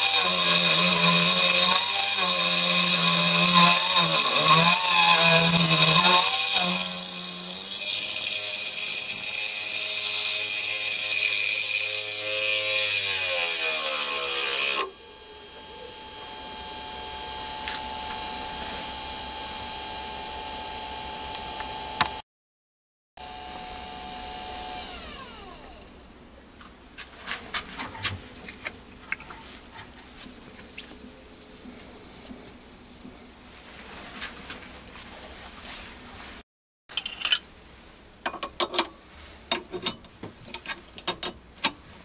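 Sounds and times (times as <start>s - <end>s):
spindle motor whining: 11.2s - 19.8s.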